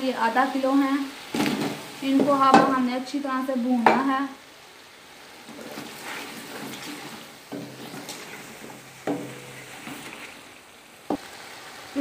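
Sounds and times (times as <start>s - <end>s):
faint sizzling: 0.0s - 12.0s
wooden spoon stirring in pot: 5.4s - 10.6s
spoon knocking against pot: 9.0s - 9.6s.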